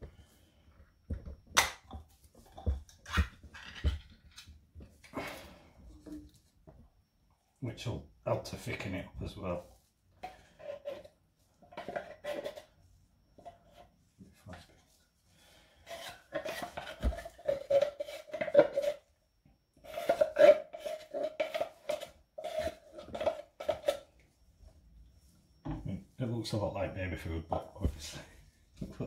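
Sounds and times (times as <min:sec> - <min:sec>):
wooden spoon scraping tin can: 0:10.2 - 0:12.8, 0:15.8 - 0:19.1, 0:19.8 - 0:24.1.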